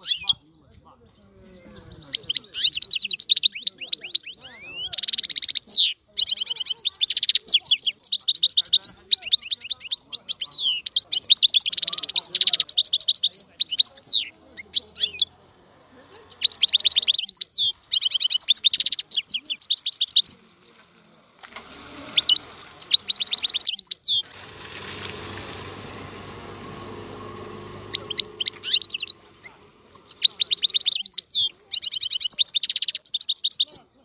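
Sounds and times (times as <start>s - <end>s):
goldfinch singing: 0.0s - 0.4s, 1.3s - 33.9s
faint hiss: 20.4s - 31.0s.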